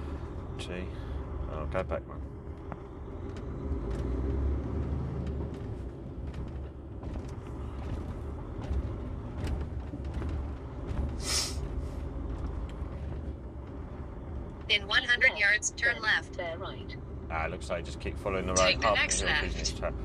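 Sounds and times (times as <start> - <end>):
diesel lorry engine rumbling: 0.0 - 20.0
air brake hissing: 11.2 - 11.6.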